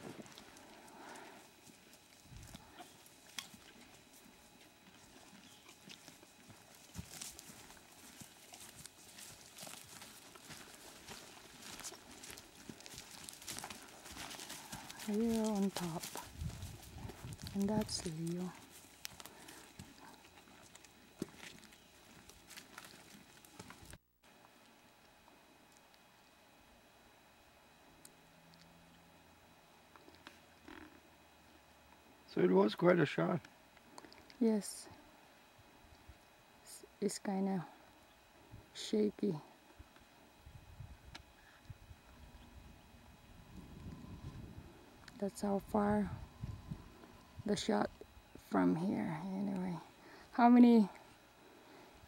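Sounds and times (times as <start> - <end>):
soft hoof steps: 0.0 - 24.0
footsteps on rock: 5.7 - 24.0.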